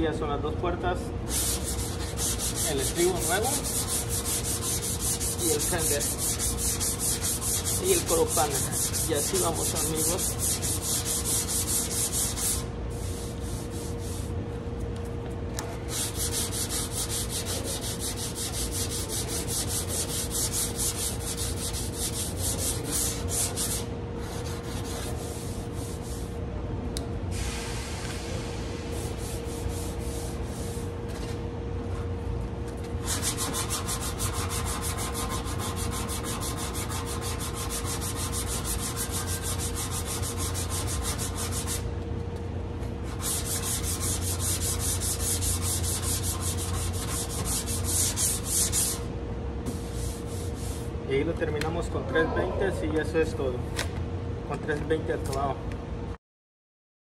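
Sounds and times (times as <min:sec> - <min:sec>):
sandpaper sanding strokes: 0:01.3 - 0:14.3, 0:15.7 - 0:26.3, 0:28.9 - 0:31.3, 0:33.0 - 0:41.8, 0:43.0 - 0:49.1, 0:49.7 - 0:50.9.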